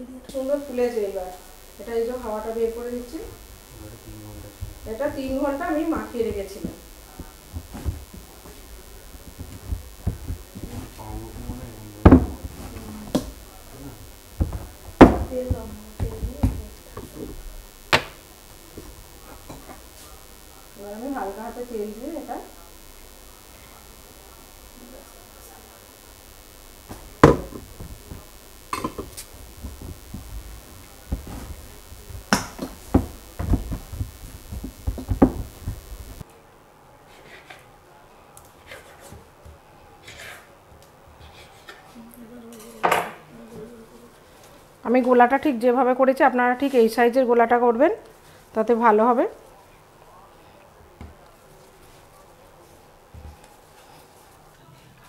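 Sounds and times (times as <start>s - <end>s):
dough kneading thumps: 4.6s - 13.6s, 14.4s - 19.8s, 26.9s - 36.2s.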